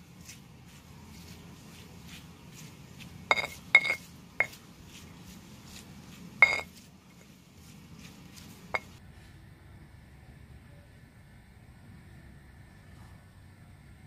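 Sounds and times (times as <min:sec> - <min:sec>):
spatula scraping a wok: 0:00.8 - 0:09.0.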